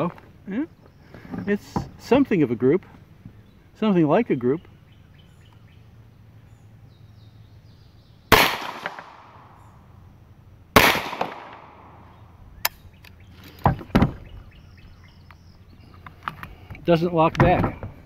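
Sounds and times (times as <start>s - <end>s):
gunshots with long echo: 8.3s - 9.7s, 10.7s - 12.2s.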